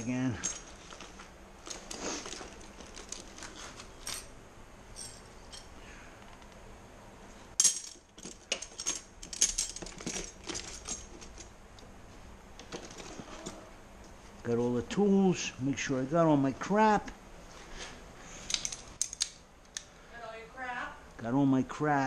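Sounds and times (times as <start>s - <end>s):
metal wrenches clinking: 0.0s - 5.8s, 7.6s - 11.5s.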